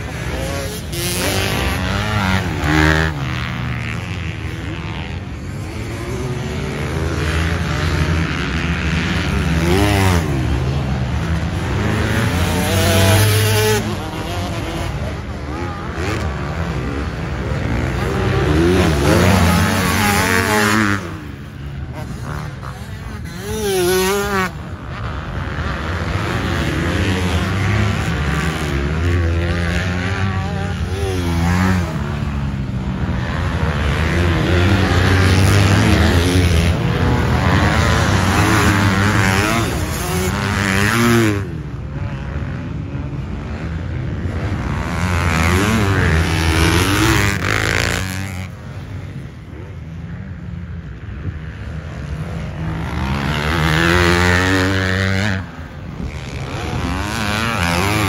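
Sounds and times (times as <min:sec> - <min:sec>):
dirt bike engines revving: 0:00.0 - 0:58.0.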